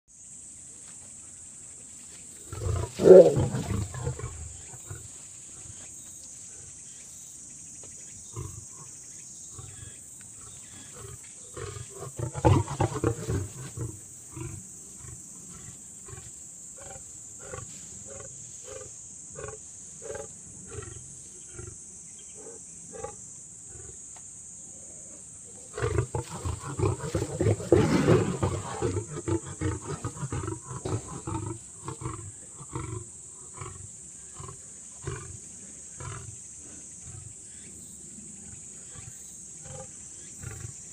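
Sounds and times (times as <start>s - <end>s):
lions growling: 2.4s - 5.8s, 9.6s - 21.8s, 24.9s - 37.4s
lions snarling: 2.4s - 5.8s, 9.6s - 21.8s, 24.9s - 37.4s.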